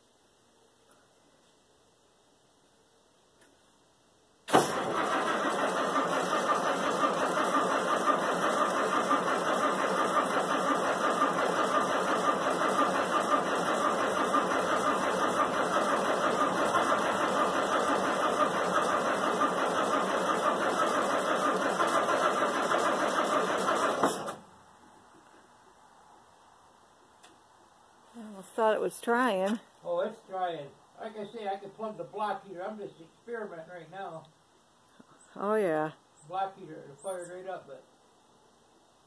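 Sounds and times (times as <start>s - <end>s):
starter motor cranking diesel engine: 4.5s - 24.5s.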